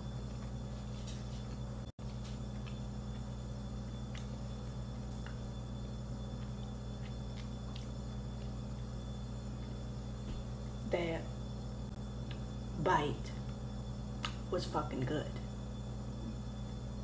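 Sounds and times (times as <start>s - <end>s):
low hum of room tone: 0.0s - 17.0s
soft chewing clicks: 3.9s - 5.6s, 6.3s - 9.8s.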